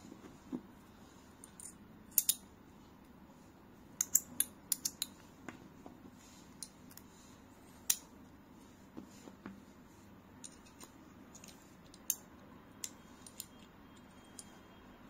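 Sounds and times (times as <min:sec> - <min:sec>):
magnetic metal parts clicking: 0:01.4 - 0:02.5, 0:04.0 - 0:05.2, 0:10.4 - 0:14.6.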